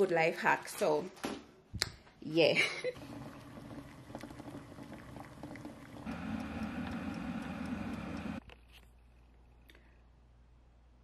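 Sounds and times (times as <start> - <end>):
electric kettle boiling: 3.0 - 8.4
water bubbling in a saucepan: 3.0 - 8.4.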